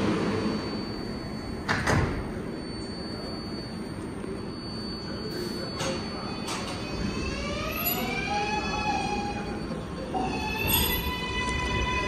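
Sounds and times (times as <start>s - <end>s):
traction motor whine: 6.3s - 12.0s.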